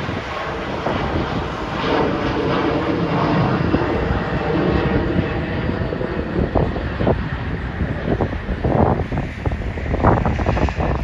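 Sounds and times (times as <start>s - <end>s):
jet airliner roaring overhead: 0.0s - 11.0s.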